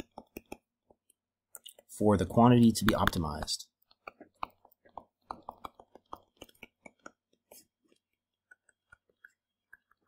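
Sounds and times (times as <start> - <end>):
stylus tapping on tablet screen: 0.0 - 1.2.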